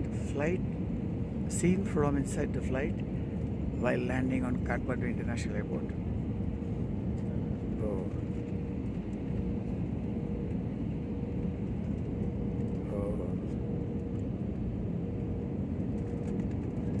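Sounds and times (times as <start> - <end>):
jet engines and airflow rumble: 0.0 - 17.0.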